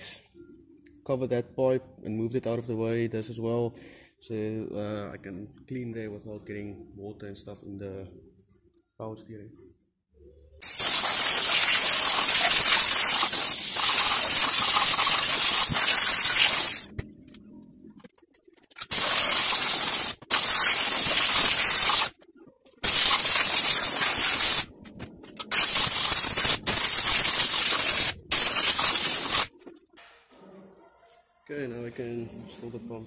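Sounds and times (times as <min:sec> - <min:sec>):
spray gun hissing in bursts: 0:10.6 - 0:16.9, 0:18.9 - 0:22.1, 0:22.8 - 0:24.7, 0:25.5 - 0:29.5.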